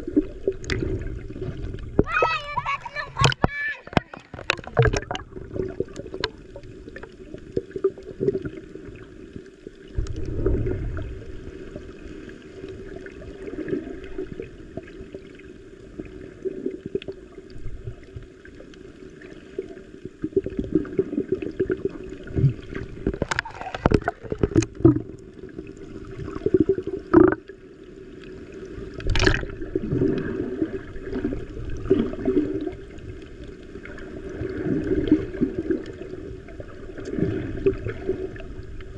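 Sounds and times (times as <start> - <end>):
underwater water gurgling: 0.0 - 38.9.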